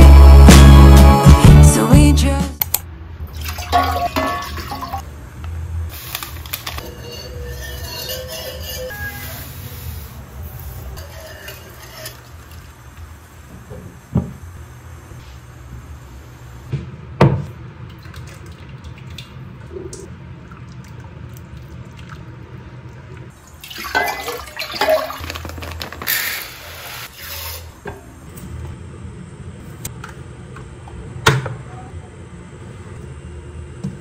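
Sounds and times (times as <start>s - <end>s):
water pouring into a pot: 23.4s - 27.6s.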